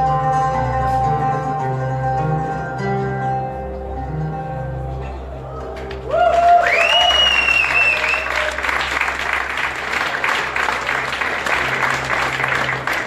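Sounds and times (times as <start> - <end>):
high cheer: 5.4 - 13.0
audience clapping: 5.8 - 13.0.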